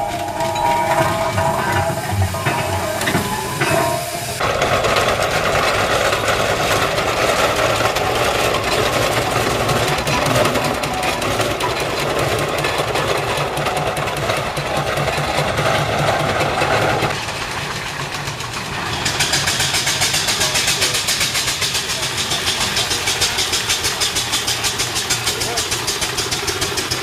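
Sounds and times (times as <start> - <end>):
steam traction engine running: 0.0 - 27.0.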